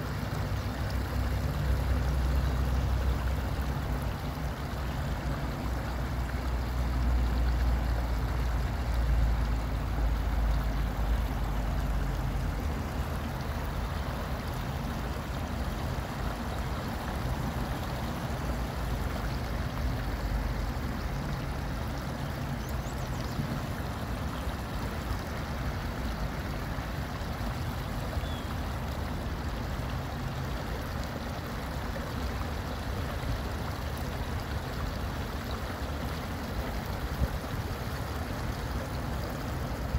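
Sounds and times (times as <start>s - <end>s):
water trickling over rocks: 0.0s - 39.9s.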